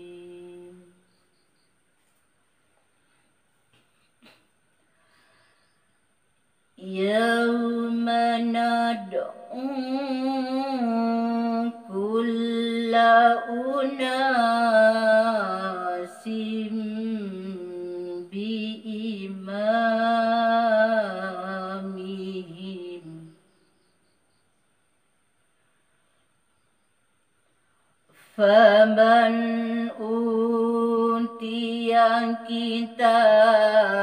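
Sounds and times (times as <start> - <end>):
woman reciting melodically: 0.0 - 1.2, 6.8 - 23.6, 28.1 - 34.0.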